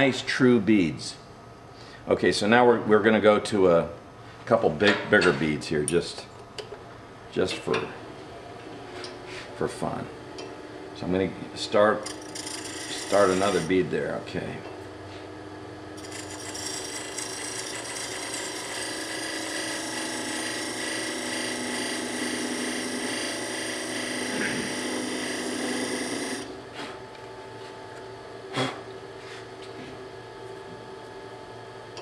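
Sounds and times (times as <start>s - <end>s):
lathe tool scraping wood: 12.0s - 13.9s, 16.0s - 26.5s.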